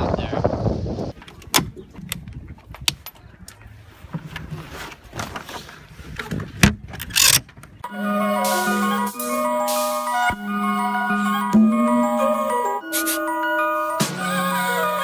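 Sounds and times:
marimba-like music: 7.8s - 15.0s.

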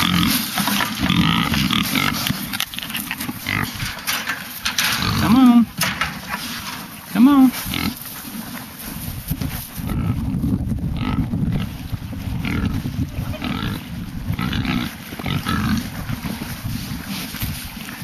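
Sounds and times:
pigs squealing: 0.0s - 4.0s, 5.0s - 5.7s, 12.5s - 13.8s, 14.4s - 15.9s
pigs grunting: 0.0s - 8.7s, 9.8s - 18.0s.

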